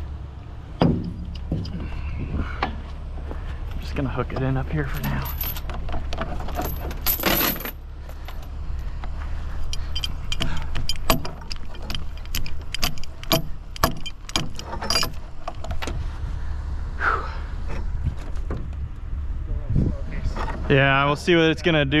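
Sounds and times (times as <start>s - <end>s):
steady low rumble: 0.0s - 22.0s
chain links clinking: 4.8s - 8.4s, 9.6s - 15.7s.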